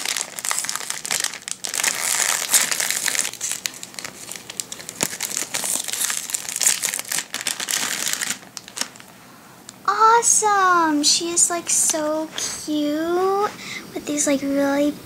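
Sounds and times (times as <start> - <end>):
foil bag crinkling and tearing: 0.0 - 9.2.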